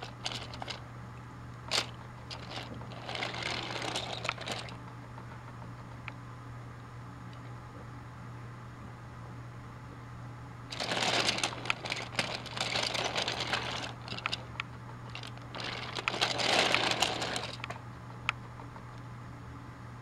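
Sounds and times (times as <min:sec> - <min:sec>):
plastic toy train rattling: 0:00.0 - 0:00.8, 0:01.7 - 0:04.8, 0:10.7 - 0:17.8.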